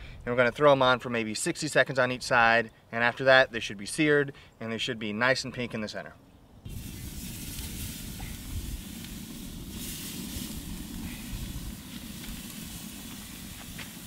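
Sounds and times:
low rumble: 6.7 - 14.0
steaks sizzling on grill: 6.7 - 14.0.

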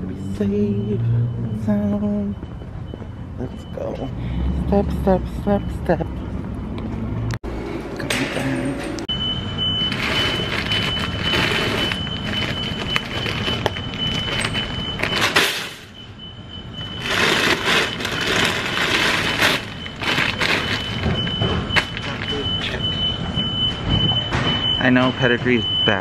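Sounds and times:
dog food bags rustling and crinkling: 9.9 - 15.4, 17.0 - 21.2.

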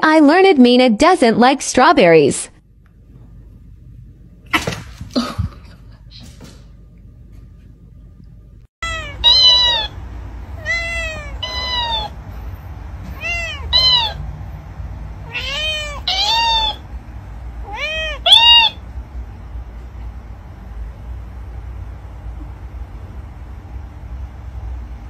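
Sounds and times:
cat meowing: 8.8 - 12.2, 13.2 - 14.3, 15.2 - 16.8, 17.6 - 18.8.

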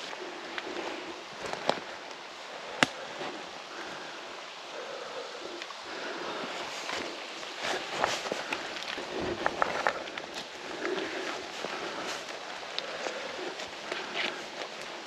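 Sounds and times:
forest ambience hiss: 0.0 - 15.0
sharp snaps: 2.7 - 3.0.

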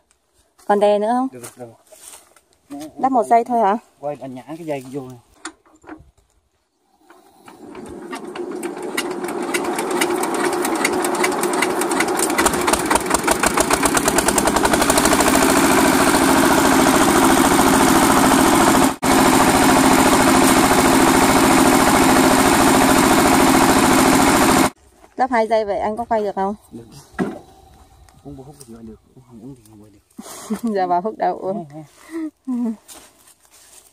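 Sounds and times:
diesel engine starting up: 7.3 - 24.8.

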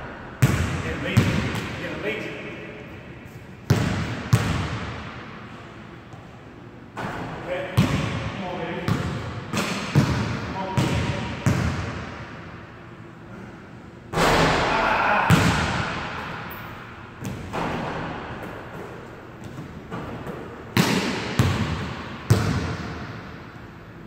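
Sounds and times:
basketball bouncing on hardwood floor: 17.2 - 22.8.

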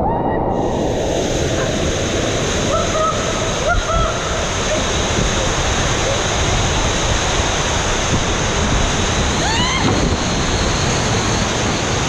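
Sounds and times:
water rushing through slide tube: 0.0 - 12.0
wind on microphone: 0.0 - 12.0
person squealing: 9.4 - 9.9.

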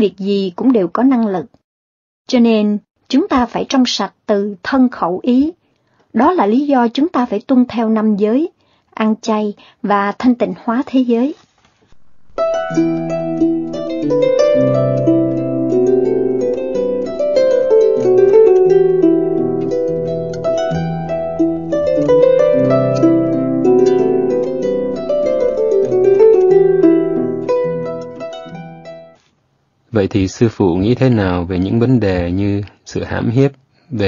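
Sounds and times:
plucked string instrument music: 11.9 - 29.2.

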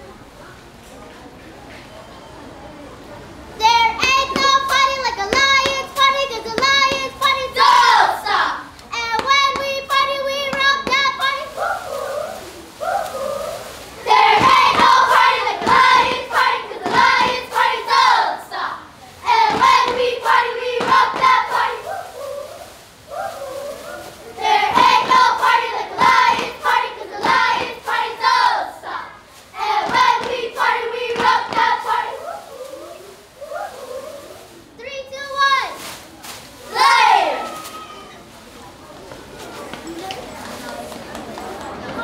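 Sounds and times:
children singing in unison: 11.5 - 18.7.

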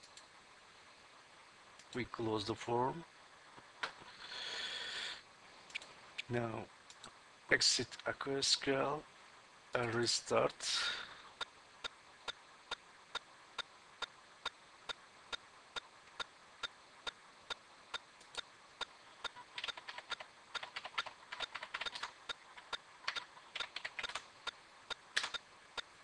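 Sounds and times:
faint steady ticking: 11.2 - 26.0
computer keyboard typing: 18.3 - 24.6, 25.2 - 25.4.

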